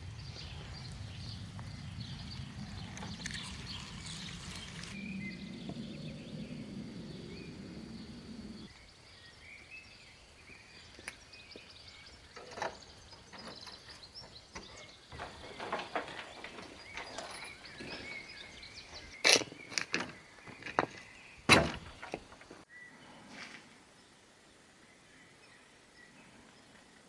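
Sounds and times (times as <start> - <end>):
wind on microphone: 0.0 - 8.7
small birds chirping: 0.0 - 23.3.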